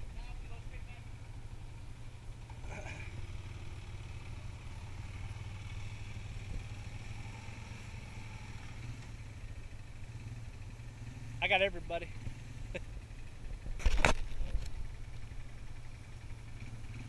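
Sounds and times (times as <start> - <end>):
atv engines idling: 0.0 - 17.0.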